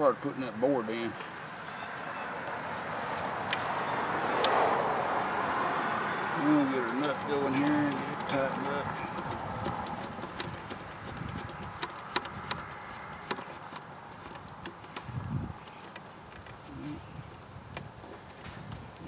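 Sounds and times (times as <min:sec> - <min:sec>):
light clicks and taps: 0:06.4 - 0:16.6.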